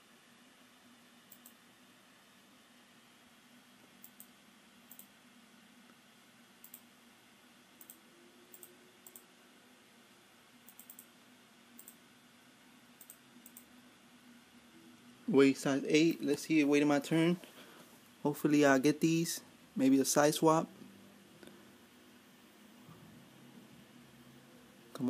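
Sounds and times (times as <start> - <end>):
low steady hum: 0.0 - 25.0
computer mouse clicks: 1.3 - 1.6, 4.0 - 5.1, 6.6 - 6.9, 7.8 - 9.3, 10.6 - 11.1, 11.8 - 12.0, 13.0 - 13.7.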